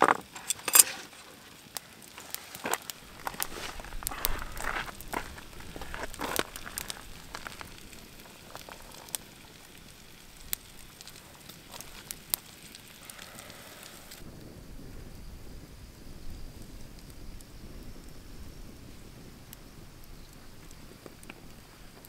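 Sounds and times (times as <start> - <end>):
rustling and scraping: 0.0 - 7.8
campfire crackling and popping: 0.0 - 22.0
low steady hiss: 0.0 - 22.0.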